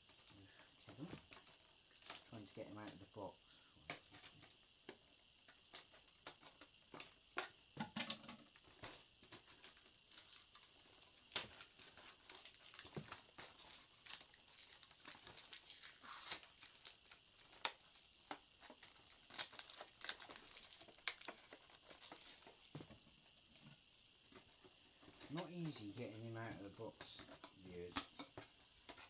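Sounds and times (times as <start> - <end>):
box packaging opened by hand: 11.3 - 18.0, 18.6 - 22.6.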